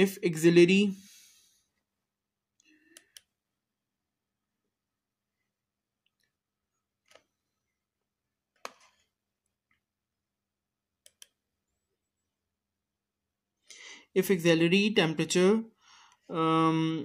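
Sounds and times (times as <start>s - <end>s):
soft clicks: 11.0s - 11.4s.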